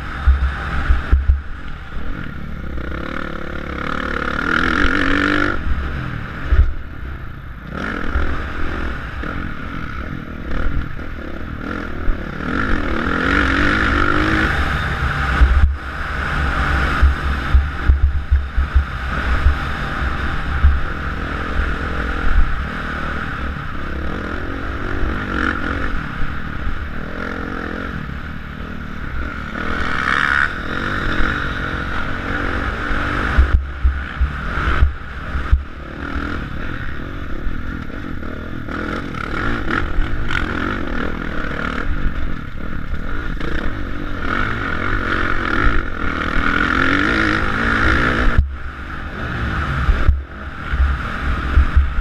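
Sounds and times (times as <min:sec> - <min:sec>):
motocross bike engine revving: 0:00.0 - 0:52.0
wind buffeting on microphone: 0:49.4 - 0:52.0.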